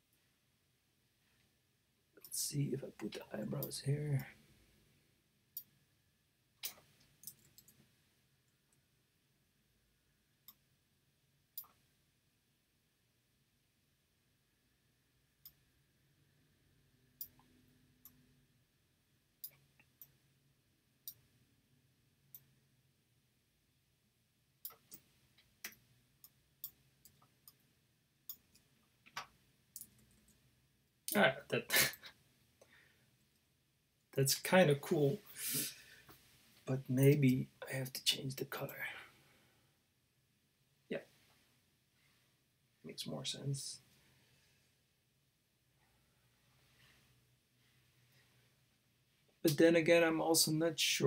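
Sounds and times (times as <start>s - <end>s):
computer mouse clicks: 6.6s - 7.8s, 11.6s - 11.8s
computer mouse clicking: 11.6s - 11.8s.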